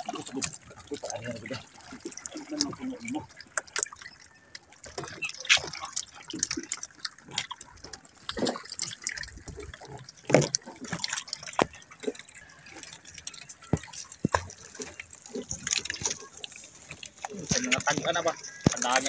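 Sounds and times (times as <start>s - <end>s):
fish splashing in water: 0.0s - 19.0s.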